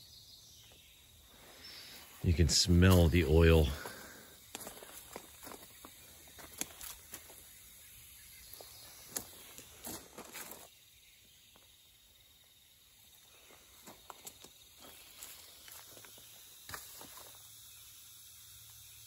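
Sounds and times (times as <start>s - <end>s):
footsteps on gravel: 2.0s - 7.4s, 8.5s - 10.7s.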